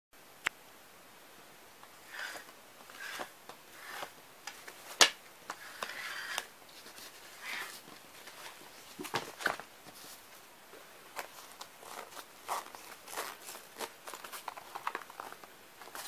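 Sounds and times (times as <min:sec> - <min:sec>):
fabric bag rustling and scraping: 0:11.2 - 0:16.0.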